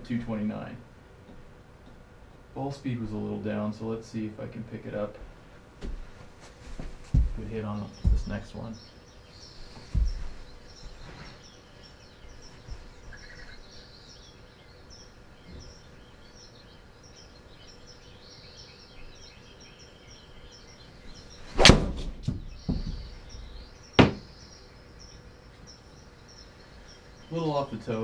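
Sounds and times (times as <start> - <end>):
golf club striking ball: 21.6 - 22.1
ball smacking impact screen: 21.6 - 22.4.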